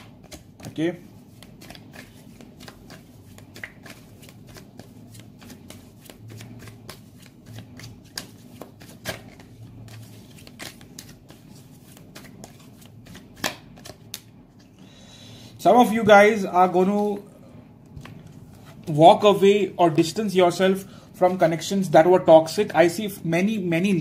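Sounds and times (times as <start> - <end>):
cards being shuffled: 0.0 - 14.7.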